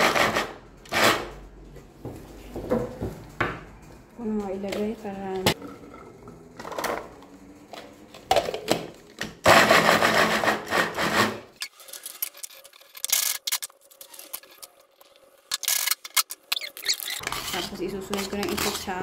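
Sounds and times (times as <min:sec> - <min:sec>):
food chopper whirring: 0:00.0 - 0:01.3, 0:09.4 - 0:11.6.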